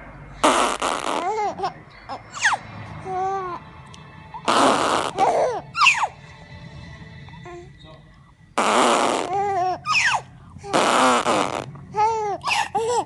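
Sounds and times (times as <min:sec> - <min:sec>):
baby cooing and squealing: 0:01.1 - 0:03.6, 0:04.4 - 0:06.2, 0:09.0 - 0:13.0
rushing breathy noise: 0:10.2 - 0:10.7.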